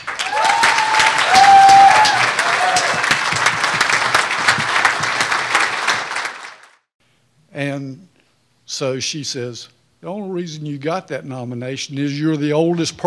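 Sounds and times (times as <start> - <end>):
audience applauding: 0.0 - 6.9
short whoops: 0.2 - 3.1.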